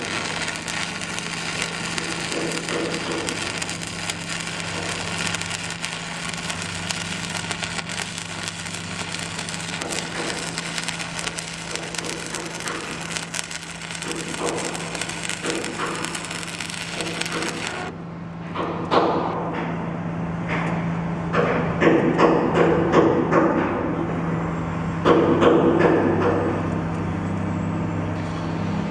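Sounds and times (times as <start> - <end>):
welding arc crackling and sizzling: 0.0 - 17.9
steady low hum: 0.0 - 18.6.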